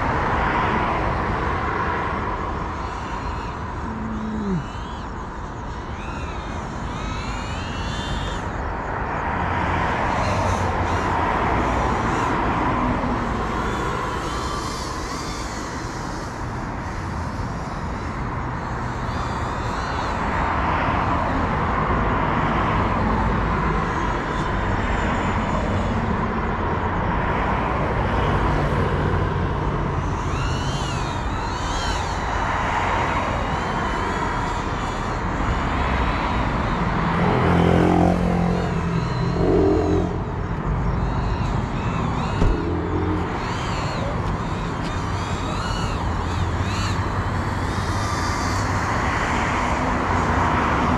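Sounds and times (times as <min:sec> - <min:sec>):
drone propellers whining: 0:01.0 - 0:20.3, 0:30.0 - 0:50.9.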